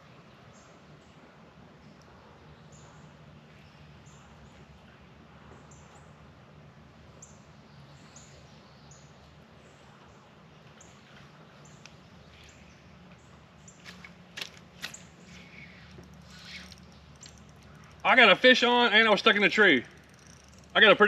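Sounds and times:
small bird chirping: 0:14.8 - 0:18.1.

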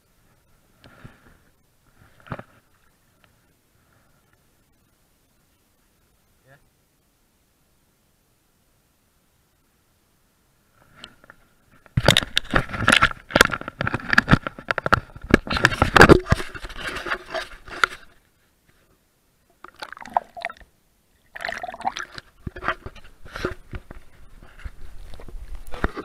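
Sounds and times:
handling knocks and scrapes on mic: 0:11.9 - 0:18.1, 0:22.4 - 0:26.0
water sloshing and splashing: 0:19.6 - 0:20.7, 0:21.3 - 0:23.4.

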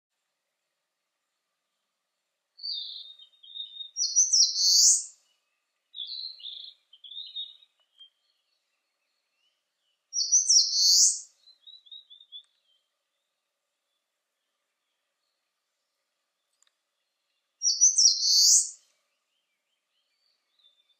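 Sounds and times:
bird singing buzzy phrases: 0:02.6 - 0:13.3, 0:17.0 - 0:20.9.

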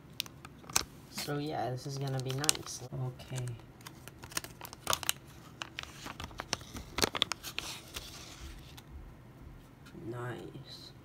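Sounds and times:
plastic bag crinkling: 0:00.2 - 0:08.8.

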